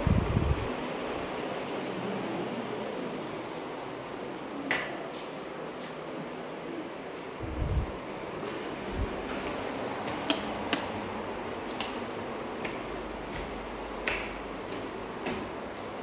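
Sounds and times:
steady background hiss: 0.0s - 16.0s
footsteps on tiled stairs: 7.9s - 16.0s.

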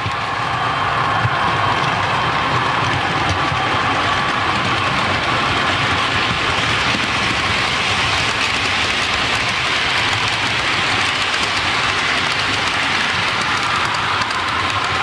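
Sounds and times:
model trains rushing on track: 0.0s - 15.0s.

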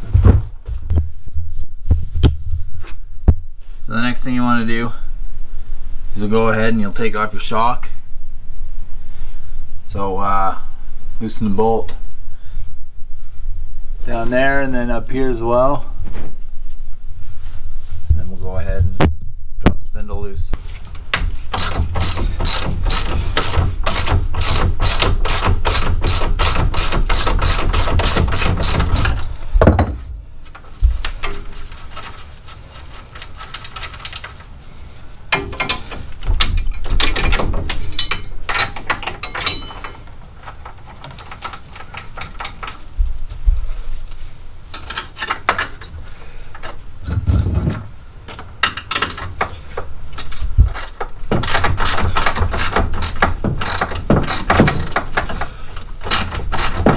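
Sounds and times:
ratchet wrench clicking: 21.6s - 29.2s, 50.2s - 55.3s.

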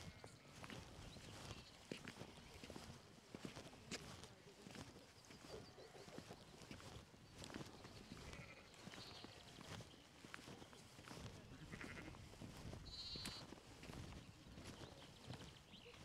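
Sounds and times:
sheep and lambs bleating: 0.0s - 0.8s, 8.0s - 9.6s, 11.4s - 13.6s.

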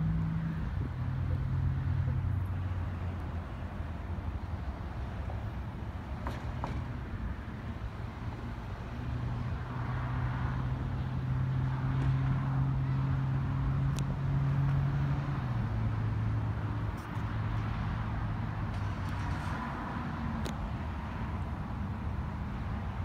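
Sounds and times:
vehicle engine humming: 0.0s - 23.0s.

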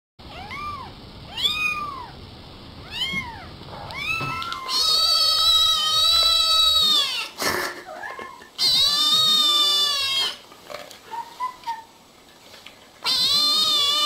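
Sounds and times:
cat meowing: 0.3s - 2.2s, 2.8s - 7.3s, 8.6s - 10.4s, 13.0s - 14.0s.

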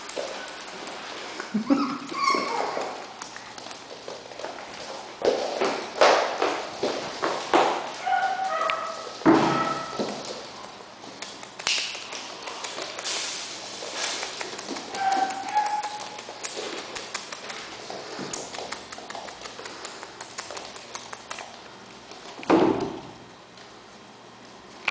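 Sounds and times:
puppy claws clicking on wooden floor: 0.0s - 1.2s, 2.1s - 22.5s
puppy whining: 1.5s - 3.2s, 14.9s - 16.3s.

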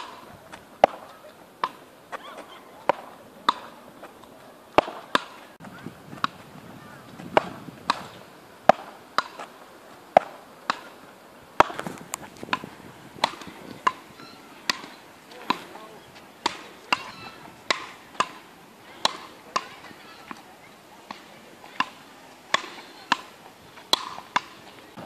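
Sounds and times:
ball knocking on paddle rackets: 0.0s - 1.8s, 2.8s - 5.4s, 7.2s - 9.5s, 11.6s - 15.8s, 16.4s - 18.4s, 19.0s - 20.4s, 21.1s - 24.6s.

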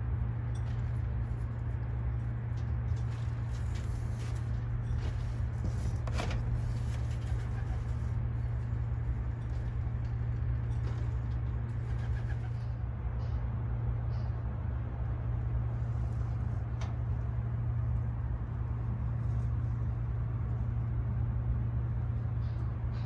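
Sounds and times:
low hum: 0.0s - 23.0s.

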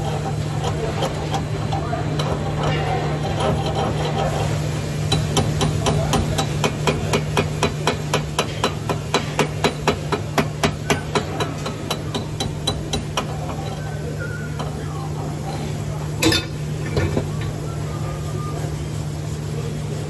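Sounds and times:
steady low hum: 0.0s - 20.0s
hammer rapping on steel: 5.1s - 13.6s.

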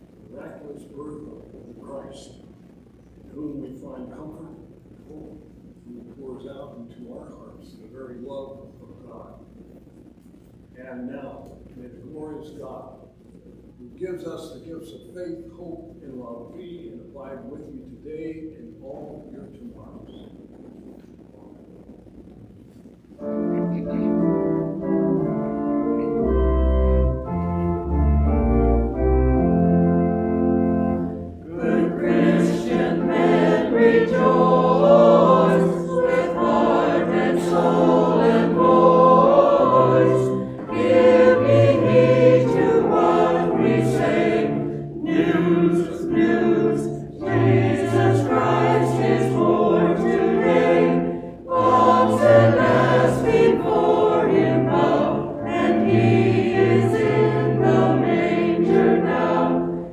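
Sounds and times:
organ chords: 23.0s - 59.9s
church choir singing: 23.2s - 59.9s.

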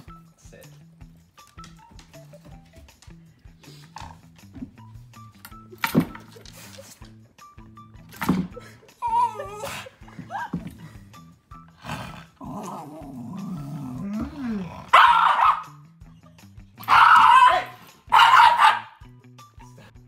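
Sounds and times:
dog whining: 8.9s - 10.6s
dog growling and snarling: 11.7s - 15.1s
dog barking: 14.9s - 15.8s, 16.8s - 19.0s.

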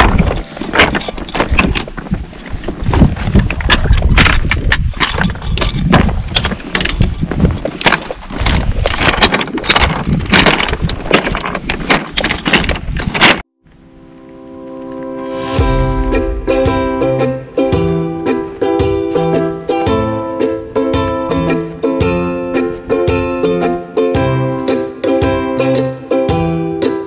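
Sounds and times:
wind on microphone: 0.0s - 13.4s.

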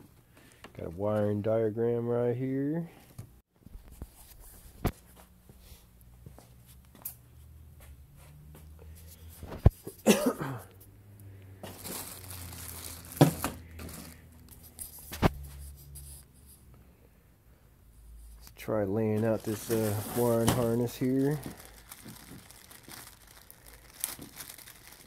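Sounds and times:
plastic bag crinkling: 11.6s - 15.0s, 19.2s - 25.0s.

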